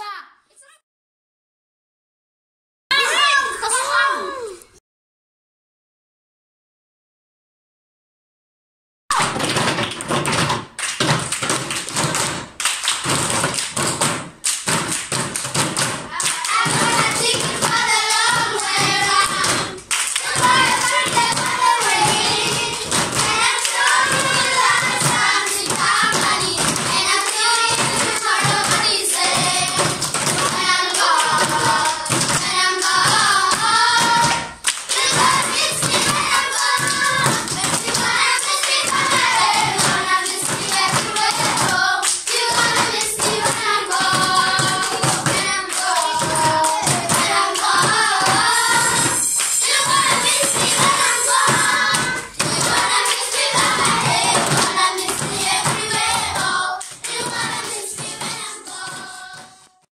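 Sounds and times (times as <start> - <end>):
rhythmic hand clapping: 9.1 - 59.9
children singing: 13.0 - 59.9.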